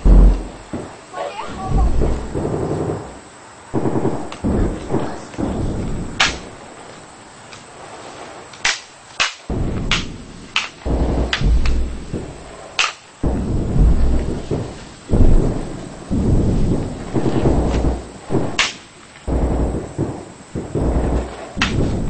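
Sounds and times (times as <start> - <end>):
deep rumbling booms: 0.0 - 7.1, 9.5 - 22.0
sharp high cracks: 0.0 - 7.7, 8.5 - 22.0.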